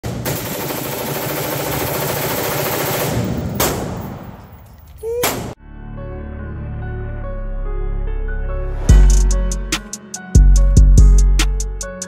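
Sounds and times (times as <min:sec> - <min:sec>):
rapid gunfire: 0:00.0 - 0:04.2
single gunshot: 0:03.5 - 0:04.4, 0:05.2 - 0:05.6.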